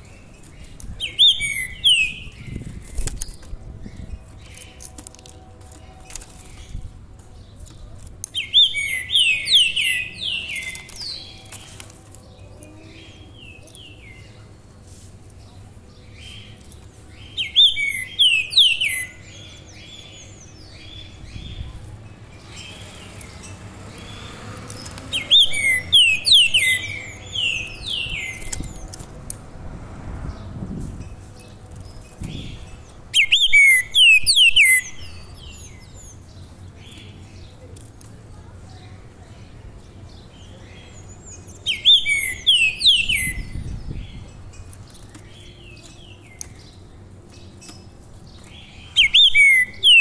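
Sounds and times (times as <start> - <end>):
songbird singing: 0.0 - 50.0.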